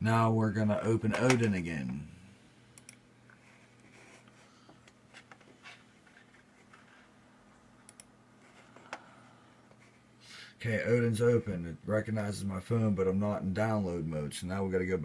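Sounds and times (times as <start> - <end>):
computer mouse clicks: 2.8 - 3.0, 7.8 - 8.1.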